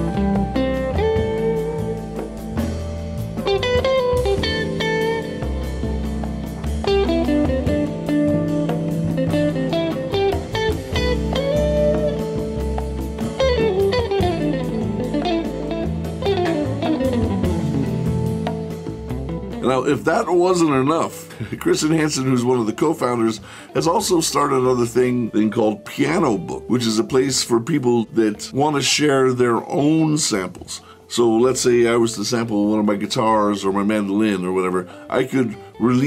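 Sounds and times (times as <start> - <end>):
bass line: 0.0 - 22.7
bluesy electric guitar: 0.0 - 36.0.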